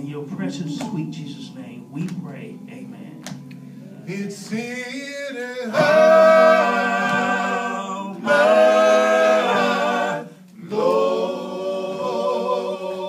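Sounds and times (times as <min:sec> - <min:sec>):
male a cappella group singing: 0:04.0 - 0:13.0.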